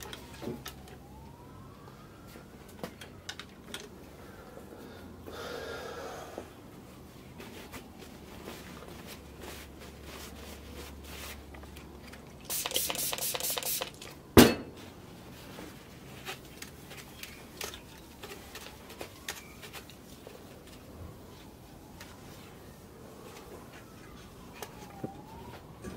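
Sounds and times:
spray bottle spraying: 12.4s - 14.0s.

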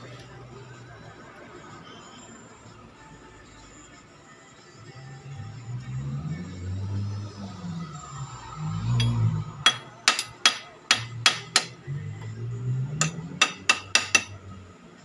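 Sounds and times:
hammer tapping on metal: 9.0s - 11.8s, 13.0s - 14.4s.

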